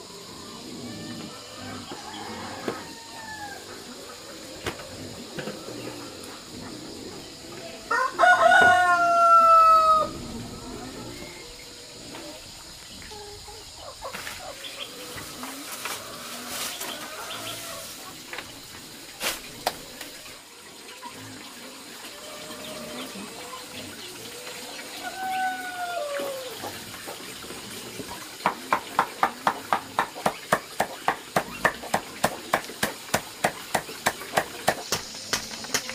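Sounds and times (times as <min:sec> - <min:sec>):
chickens calling: 0:00.0 - 0:35.9
scattered knocks: 0:28.4 - 0:35.9.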